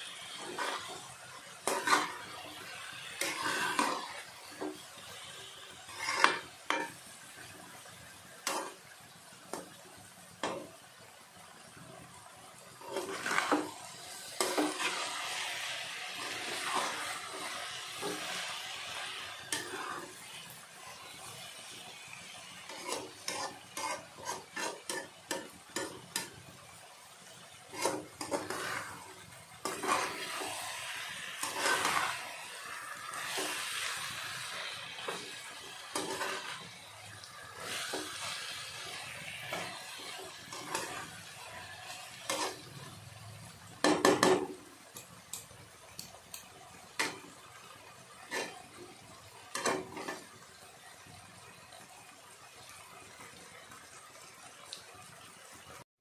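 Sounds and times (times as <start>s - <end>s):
spatula scraping a pan: 0.0s - 9.8s, 10.4s - 10.7s, 12.6s - 26.4s, 27.5s - 43.0s, 47.0s - 50.5s
sizzle of frying in oil: 0.0s - 55.9s.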